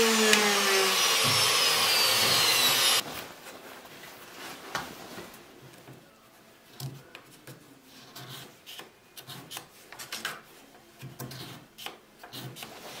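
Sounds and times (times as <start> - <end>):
file rasping in wood: 11.3 - 13.0.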